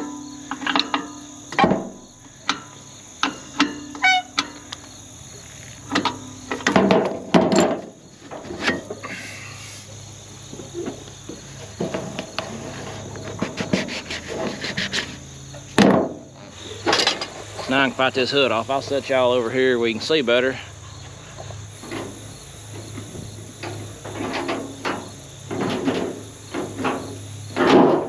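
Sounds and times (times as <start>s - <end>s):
metal clicks and tool knocks: 0.0s - 1.8s, 2.4s - 4.9s, 5.9s - 9.0s
insects droning: 0.0s - 28.0s.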